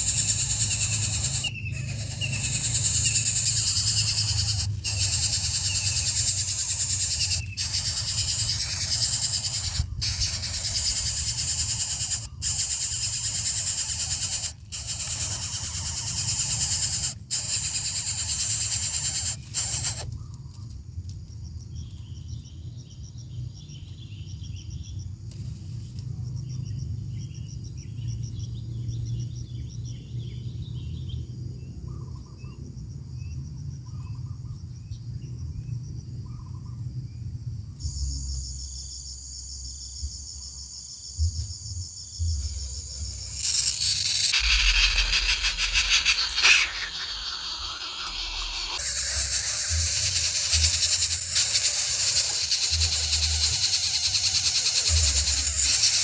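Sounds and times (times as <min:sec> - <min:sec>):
high pulsing insect buzz: 0:00.0 - 0:20.1, 0:37.8 - 0:56.0
nestlings hissing: 0:00.0 - 0:20.1, 0:42.9 - 0:56.0
faint bird chirps: 0:00.0 - 0:20.6, 0:42.1 - 0:56.0.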